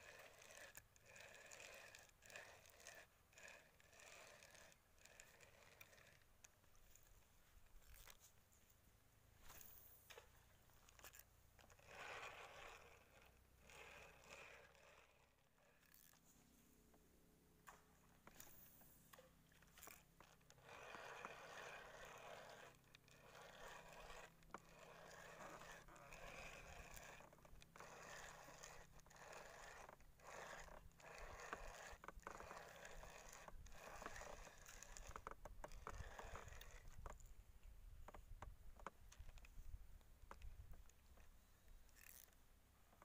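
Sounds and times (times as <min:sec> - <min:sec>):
fishing reel whirring: 0:00.0 - 0:07.1, 0:10.8 - 0:16.2, 0:18.3 - 0:37.2, 0:41.9 - 0:42.4.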